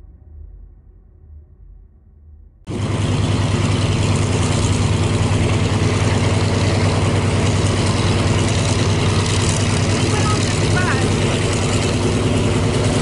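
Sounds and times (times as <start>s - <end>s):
propeller aircraft engines droning: 2.7s - 13.0s.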